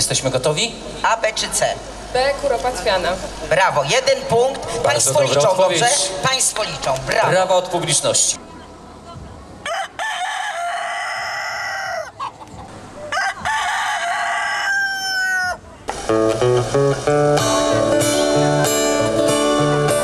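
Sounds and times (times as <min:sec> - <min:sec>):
rooster crowing: 0:09.6 - 0:12.3, 0:13.0 - 0:15.6
acoustic guitar music: 0:15.8 - 0:20.0.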